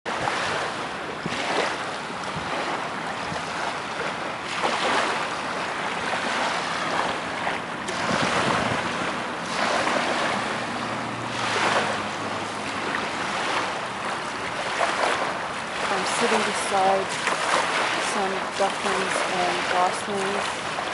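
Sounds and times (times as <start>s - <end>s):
small waves washing onto beach: 0.1s - 20.9s
wind on microphone: 0.1s - 20.9s.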